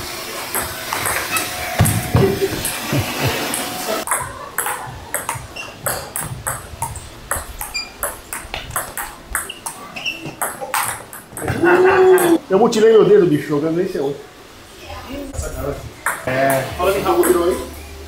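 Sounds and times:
table tennis ball tapping: 4.1s - 12.4s, 16.0s - 16.3s.

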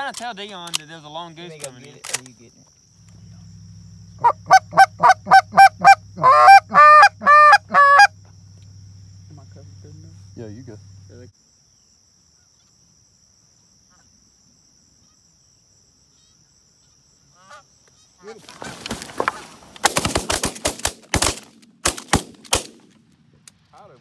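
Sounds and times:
goose call clucks and honks: 4.2s - 8.2s, 16.8s - 18.4s.

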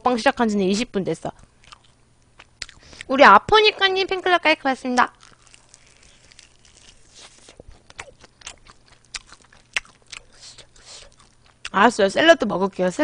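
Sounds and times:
chewing crunches: 1.4s - 3.1s, 4.8s - 11.8s.

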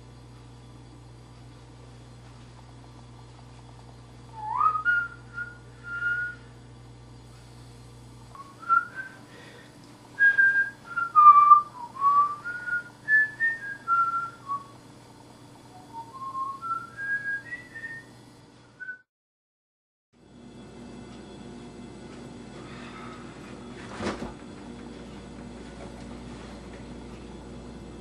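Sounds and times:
person whistling a tune: 4.4s - 6.5s, 8.4s - 9.3s, 10.2s - 14.7s, 15.8s - 18.1s.

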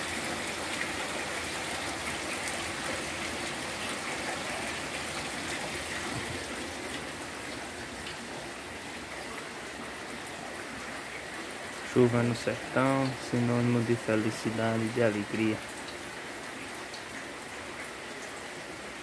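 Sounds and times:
heavy rain falling: 0.0s - 19.0s.

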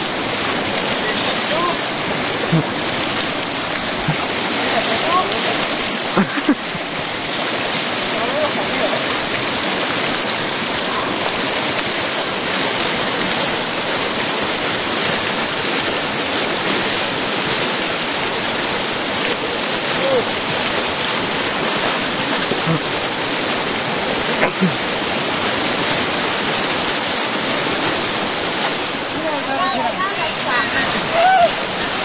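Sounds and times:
rushing river water: 0.0s - 32.0s.

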